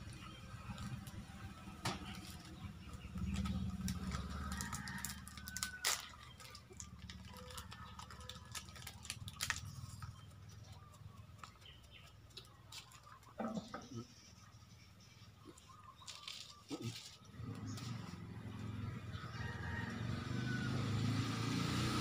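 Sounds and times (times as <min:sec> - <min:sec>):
plastic snack packets crinkling: 0:00.0 - 0:13.4, 0:16.0 - 0:17.2.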